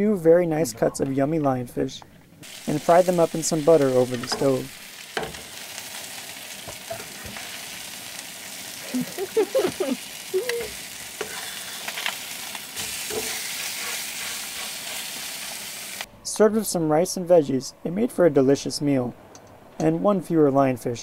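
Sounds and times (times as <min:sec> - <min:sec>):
fish sizzling in a pan: 0:02.4 - 0:16.1.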